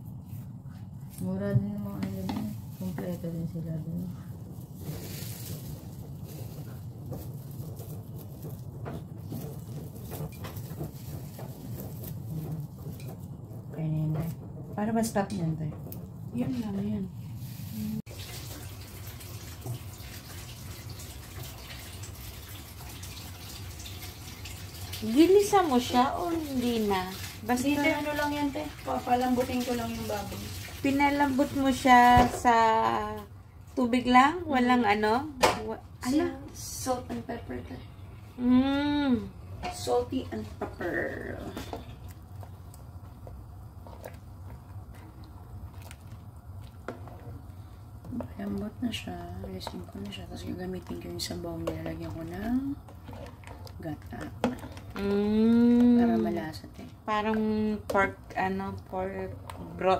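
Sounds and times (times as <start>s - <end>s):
pot bubbling: 0.0s - 59.9s
wet squishing: 41.5s - 57.1s.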